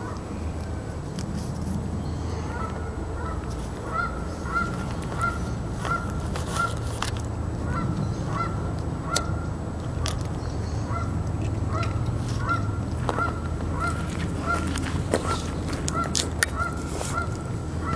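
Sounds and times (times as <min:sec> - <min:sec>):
steady low rumble: 0:00.0 - 0:17.9
waterfowl honking: 0:02.3 - 0:06.8, 0:07.6 - 0:09.4, 0:10.8 - 0:11.1, 0:11.7 - 0:17.9.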